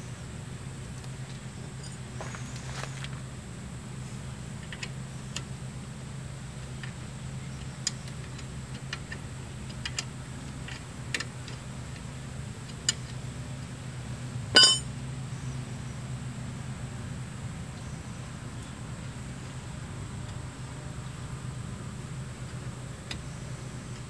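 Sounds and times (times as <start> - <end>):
steady low hum: 14.1 - 15.7
loud ringing metal clink: 14.6 - 14.9.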